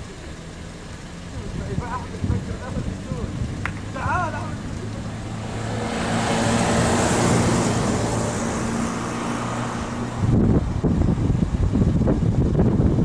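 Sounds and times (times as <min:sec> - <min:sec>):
road noise: 0:00.0 - 0:13.0
vehicle engine humming: 0:00.0 - 0:13.0
wind buffeting microphone: 0:01.5 - 0:04.0, 0:05.2 - 0:13.0.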